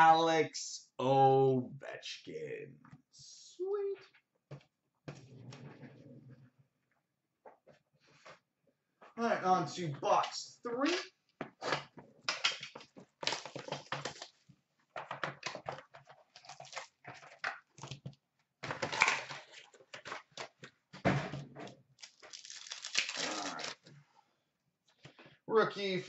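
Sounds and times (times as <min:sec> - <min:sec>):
wrapper crinkling: 0:13.2 - 0:14.4, 0:16.1 - 0:18.0, 0:22.0 - 0:23.9.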